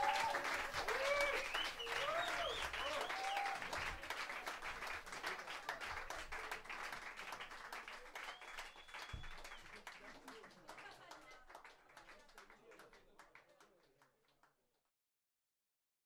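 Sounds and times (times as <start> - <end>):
cheers: 0.0 - 6.7, 7.9 - 9.9
audience applauding: 0.0 - 14.1.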